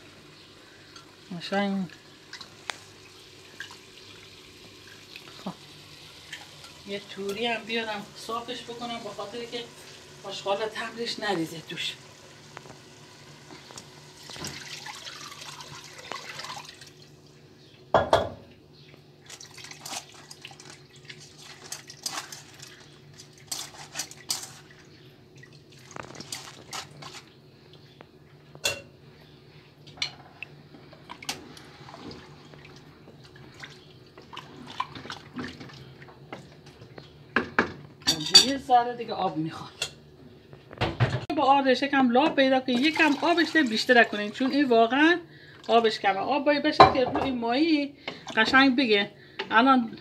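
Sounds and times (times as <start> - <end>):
liquid pouring into pot: 12.2 - 17.2.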